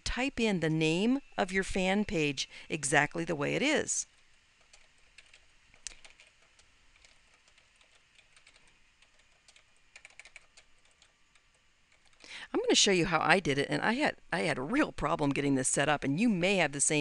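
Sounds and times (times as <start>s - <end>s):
typing on computer keyboard: 4.6s - 12.2s.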